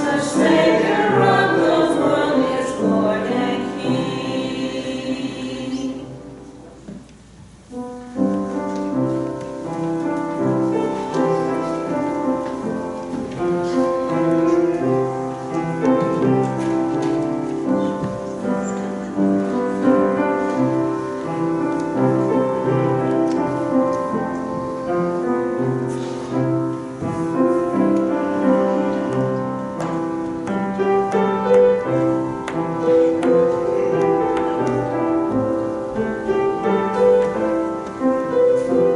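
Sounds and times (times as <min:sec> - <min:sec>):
choir chord: 0:00.0 - 0:06.7
piano playing: 0:00.0 - 0:38.9.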